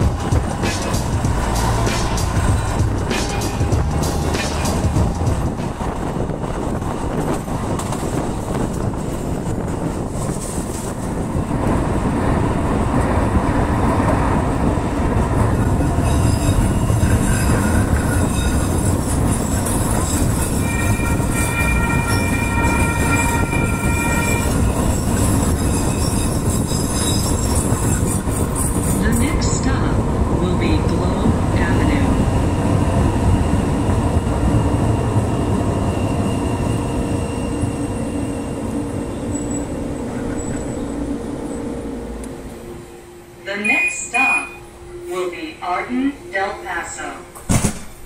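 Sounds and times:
train wheels rumbling: 0:00.0 - 0:43.6
steady high tone: 0:33.2 - 0:47.4.

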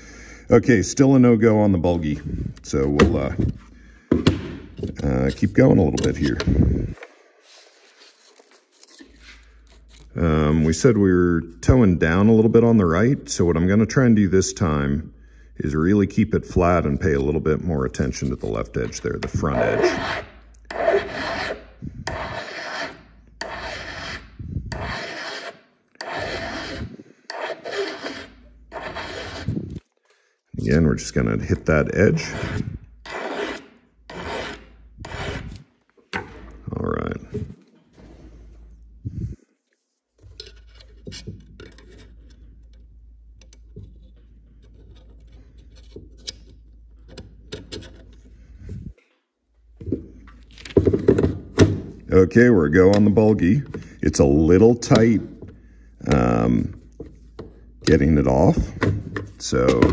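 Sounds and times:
hand file rasping on steel: 0:19.3 - 0:29.8, 0:32.0 - 0:35.6.

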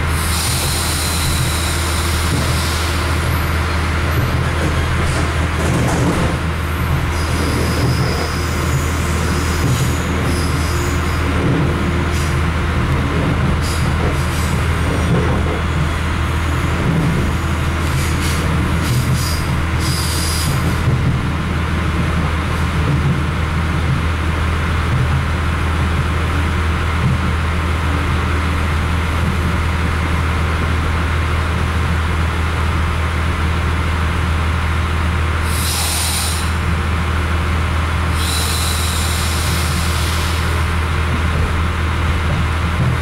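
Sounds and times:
diesel engine drone: 0:00.0 - 0:43.0
short hissing bursts: 0:35.5 - 0:36.6, 0:38.2 - 0:40.5.

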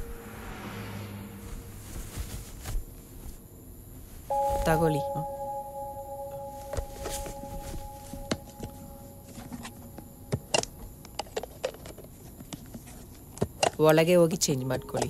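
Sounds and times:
steady high tone: 0:00.0 - 0:01.8, 0:04.3 - 0:11.1
cloth rustling: 0:01.4 - 0:03.4, 0:04.0 - 0:05.3, 0:06.5 - 0:09.7.

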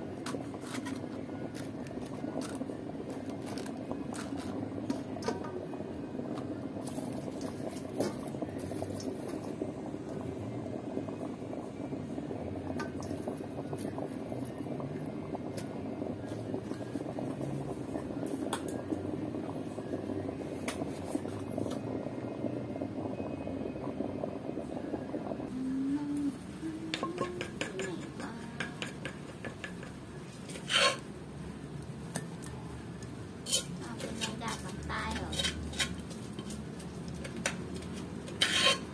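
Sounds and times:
water boiling hard in pot: 0:00.0 - 0:38.9
utensil clinking metal bowl: 0:26.9 - 0:31.0.

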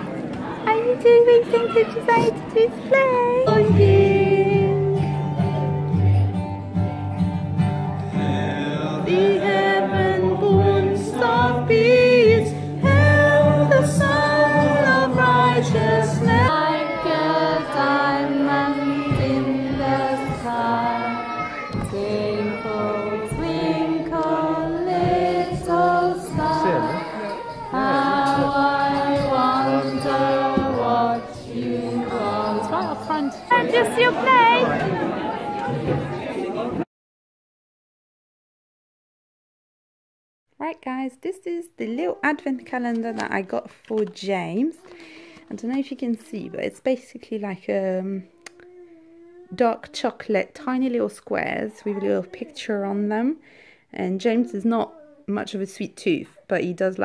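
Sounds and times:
women singing: 0:00.7 - 0:05.2, 0:08.2 - 0:34.8
children singing: 0:03.2 - 0:05.0, 0:08.1 - 0:36.1
instrumental accompaniment: 0:04.9 - 0:34.3.

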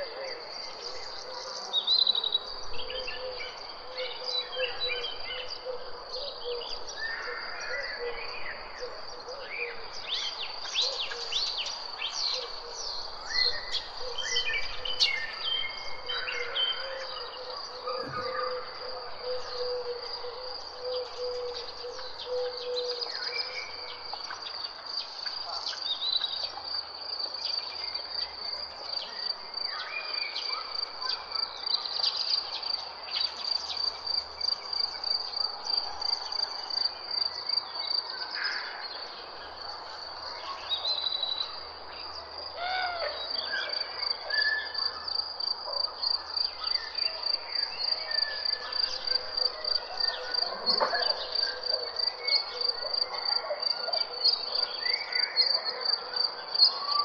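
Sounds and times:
bird calls: 0:00.7 - 0:24.6, 0:46.6 - 0:55.6.

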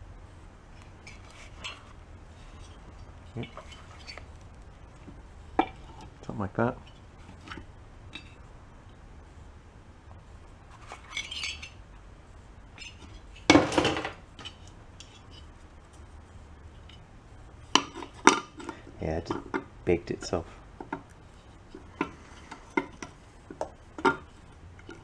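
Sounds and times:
metal parts clinking and scraping: 0:10.7 - 0:11.8.

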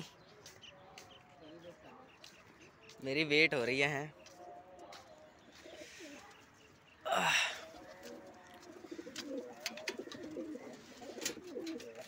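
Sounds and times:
pigeons cooing: 0:04.6 - 0:12.0.

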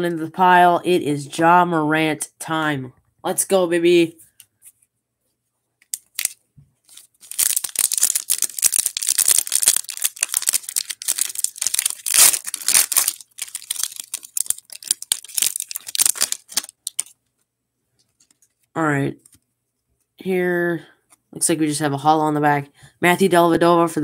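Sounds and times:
foil wrapper tearing and crinkling: 0:06.0 - 0:17.2.

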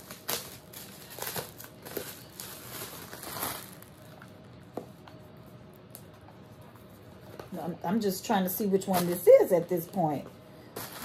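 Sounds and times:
bubble wrap crinkling: 0:00.0 - 0:04.4, 0:08.9 - 0:09.5, 0:10.8 - 0:11.0.

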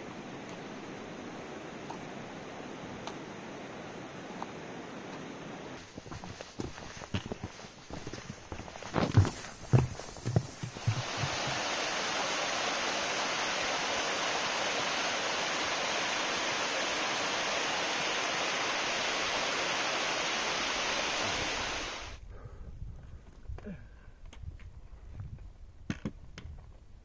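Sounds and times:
footsteps on wooden steps: 0:05.8 - 0:11.6
waterfall rushing over rocks: 0:09.8 - 0:22.2.

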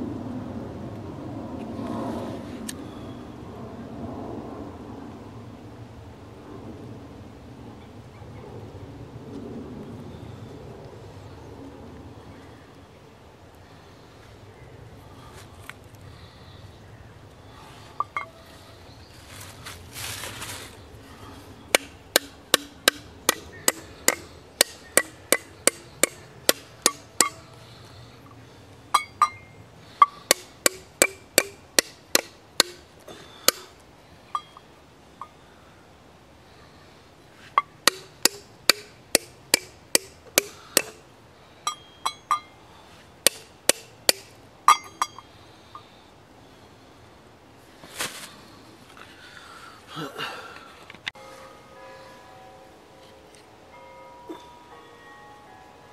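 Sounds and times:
hammer tapping steel nails: 0:21.7 - 0:27.4, 0:30.0 - 0:32.8, 0:37.6 - 0:41.0, 0:43.3 - 0:45.2.

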